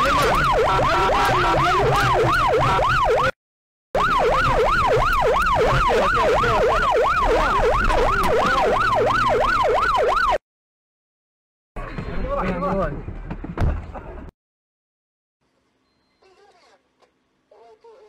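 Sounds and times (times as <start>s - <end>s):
emergency siren yelping: 0.0s - 3.4s, 4.0s - 10.4s.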